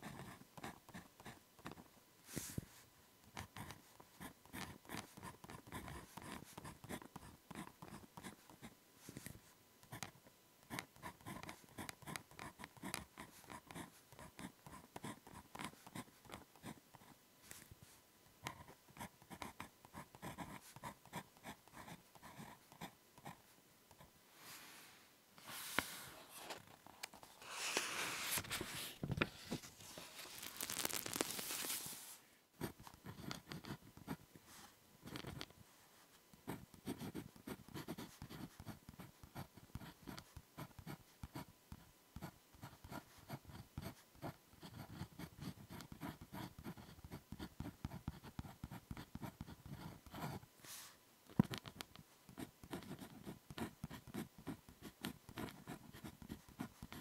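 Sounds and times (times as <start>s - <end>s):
pen writing on paper: 3.4s - 8.7s, 10.7s - 17.1s, 32.6s - 34.2s, 36.5s - 41.5s, 42.2s - 50.4s, 52.4s - 57.0s
paper rustling: 25.4s - 32.2s.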